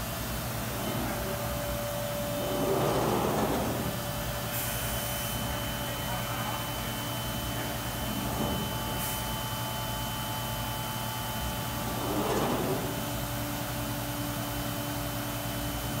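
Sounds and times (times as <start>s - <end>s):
machine hum: 0.0s - 15.0s.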